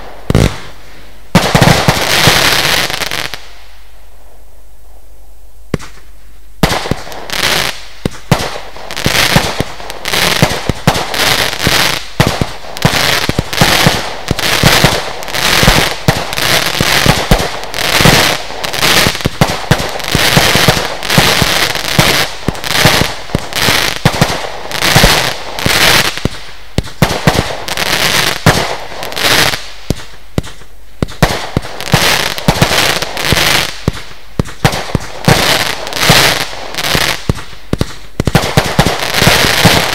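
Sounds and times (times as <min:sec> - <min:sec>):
firework launch shots: 0:05.7 - 0:27.7, 0:33.3 - 0:39.9.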